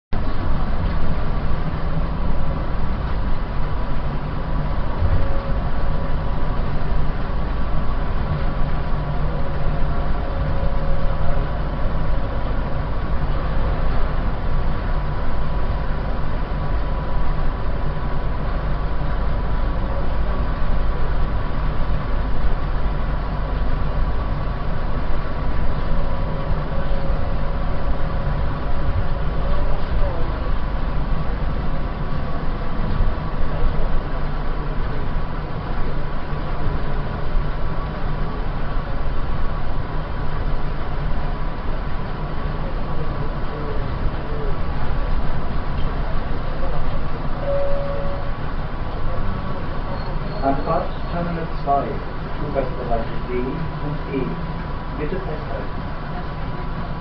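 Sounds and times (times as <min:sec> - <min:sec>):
people mover car rumbling: 0:00.1 - 0:57.0
constant high tone: 0:46.6 - 0:48.4.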